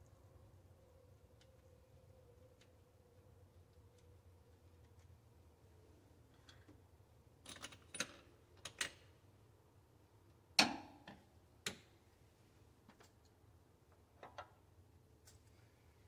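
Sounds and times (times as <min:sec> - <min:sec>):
metal tools clicking and clinking: 0:07.4 - 0:09.0.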